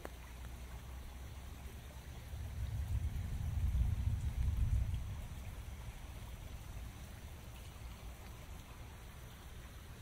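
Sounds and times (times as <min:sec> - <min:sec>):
creek water flowing: 0:00.0 - 0:10.0
rain on foliage: 0:00.0 - 0:10.0
fluttering low rumble: 0:02.2 - 0:08.0.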